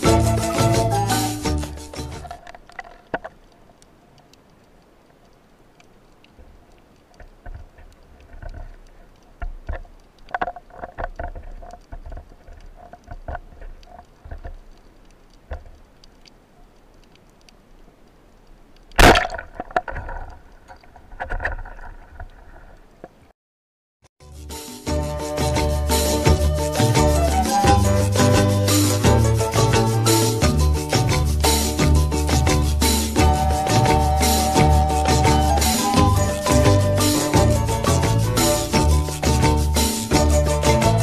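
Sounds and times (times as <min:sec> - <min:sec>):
underwater clicks: 0:01.5 - 0:23.2
speargun firing crack: 0:19.0 - 0:19.9.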